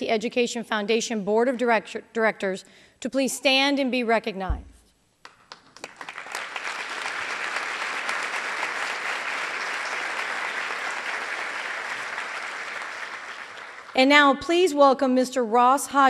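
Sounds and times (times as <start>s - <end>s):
audience applauding: 5.5s - 14.0s.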